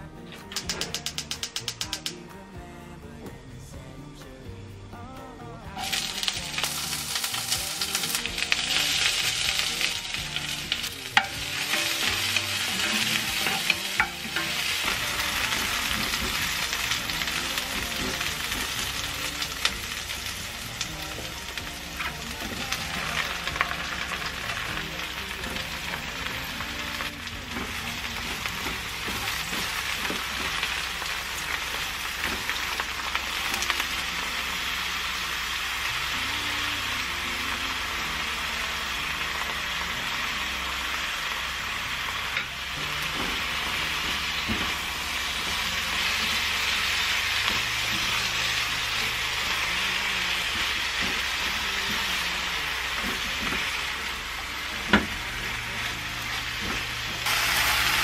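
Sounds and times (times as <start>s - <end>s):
pan clicking as stirred: 0.5s - 2.2s
food sizzling in hot oil: 5.7s - 58.0s.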